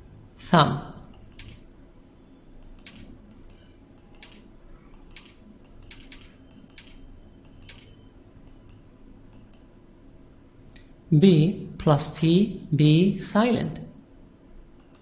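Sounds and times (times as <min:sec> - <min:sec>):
low steady hum: 0:00.0 - 0:15.0
computer mouse clicking: 0:01.1 - 0:01.7, 0:02.6 - 0:09.7, 0:14.8 - 0:15.0.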